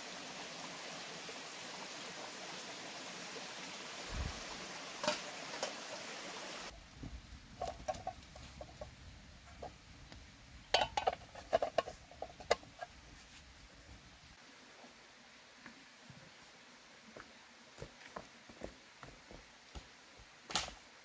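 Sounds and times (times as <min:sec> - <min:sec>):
running water: 0:00.0 - 0:06.8.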